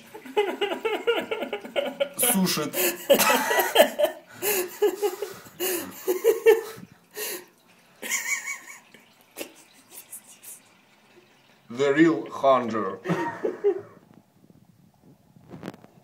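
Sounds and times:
man talking: 2.2s - 3.0s, 11.7s - 13.1s.

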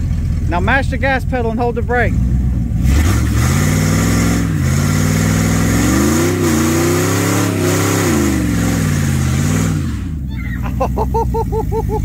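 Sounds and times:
engine revving hard: 2.0s - 10.2s.

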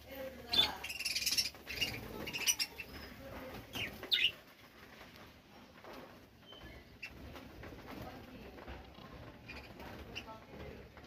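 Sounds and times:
wings fluttering: 0.0s - 11.0s
budgerigars chirping: 0.4s - 4.4s.

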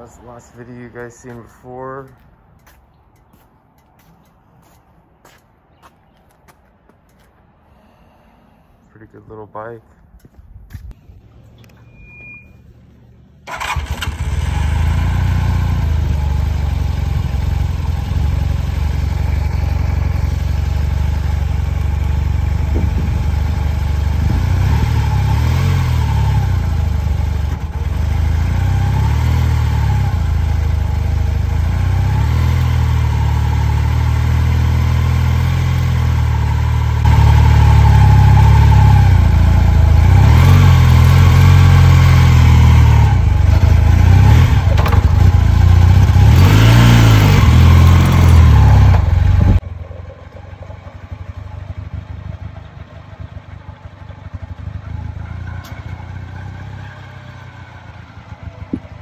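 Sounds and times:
motorcycle engine idling and revving: 10.2s - 59.0s
wind buffeting microphone: 22.6s - 23.4s.

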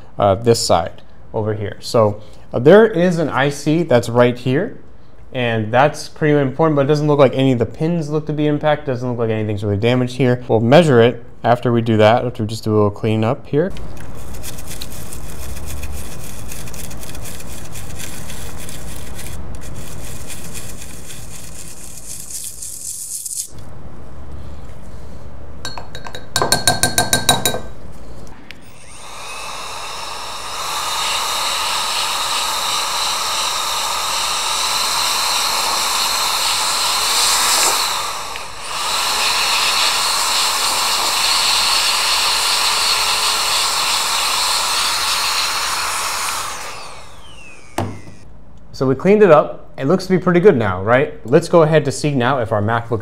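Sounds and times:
brush scrubbing circuit board: 14.2s - 23.5s
air blowing hiss: 28.3s - 48.2s.

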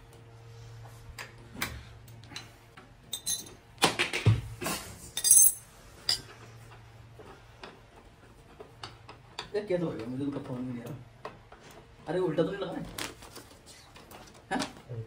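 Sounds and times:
metal bicycle parts clinking: 2.4s - 3.6s, 5.1s - 6.3s
metal parts clattering: 5.2s - 6.2s.

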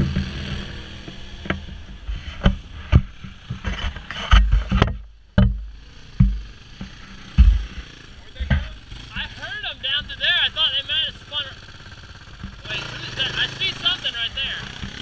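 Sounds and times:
off-road vehicle engine: 0.0s - 15.0s
sharp knocks: 1.1s - 9.3s.

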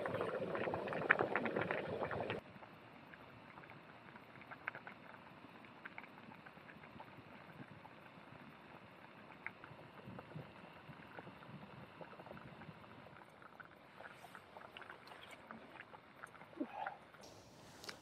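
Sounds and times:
small pops and ticks: 3.1s - 8.0s, 9.0s - 13.8s
gas stove hiss: 17.2s - 18.0s.

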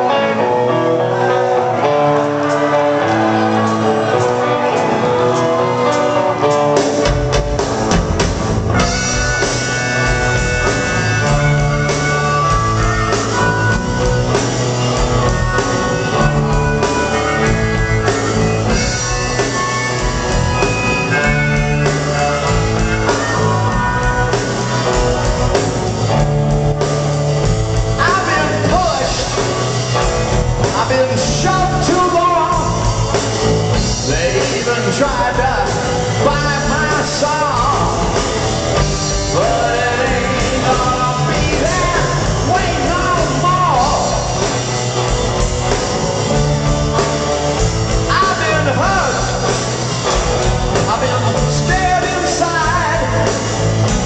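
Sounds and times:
bass guitar: 0.0s - 54.0s
electric guitar: 0.0s - 54.0s
drum kit: 1.2s - 54.0s
male singer: 28.0s - 29.5s, 30.6s - 33.1s, 33.8s - 38.4s, 39.0s - 44.4s, 48.0s - 49.6s, 50.7s - 53.5s.

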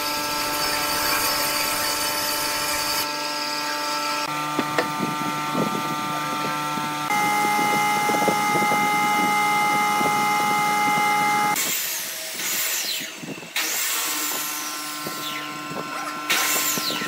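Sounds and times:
power tool motor humming: 0.0s - 17.0s.

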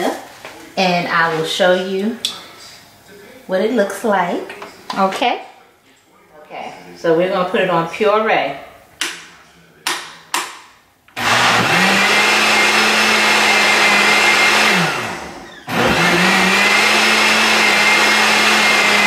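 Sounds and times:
blender motor running: 11.1s - 19.0s.

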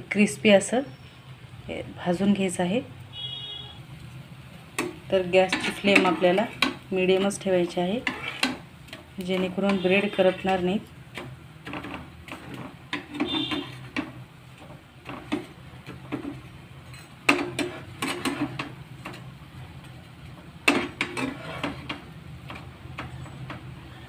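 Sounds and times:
bread frying: 2.1s - 24.0s
spatula scraping a frying pan: 4.8s - 19.4s, 20.2s - 24.0s.

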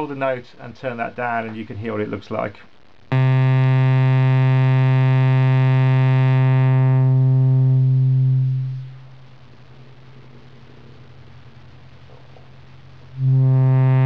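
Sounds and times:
low synthesizer note: 3.1s - 9.0s, 13.2s - 14.0s.

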